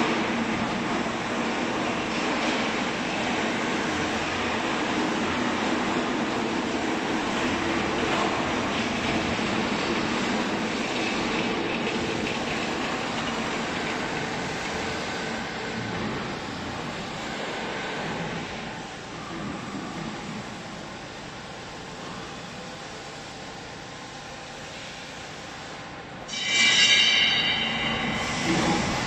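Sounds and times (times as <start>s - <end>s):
baler machinery running: 0.0s - 22.3s, 26.3s - 29.0s.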